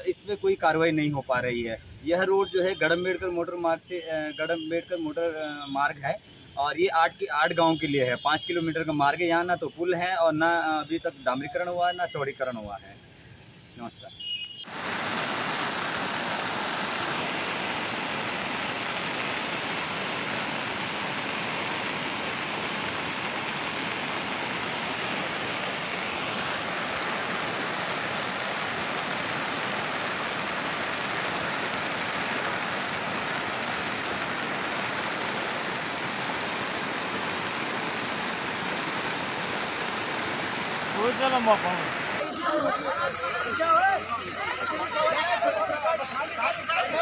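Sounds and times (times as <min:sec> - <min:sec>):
stream rushing over road: 0:14.6 - 0:47.0.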